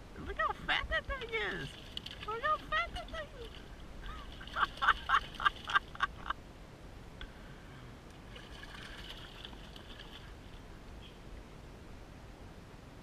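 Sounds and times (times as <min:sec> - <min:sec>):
fish splashing at water surface: 0:08.3 - 0:10.6.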